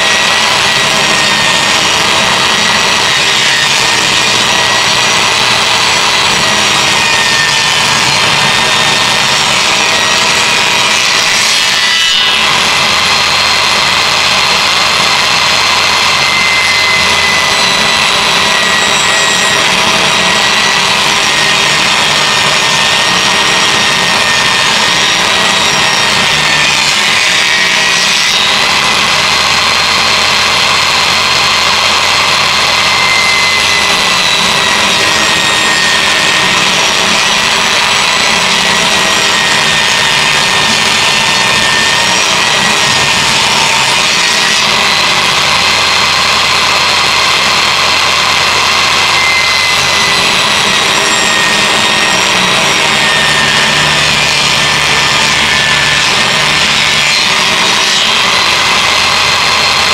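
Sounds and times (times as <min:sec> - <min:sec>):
table saw motor whine: 0:00.0 - 0:59.9.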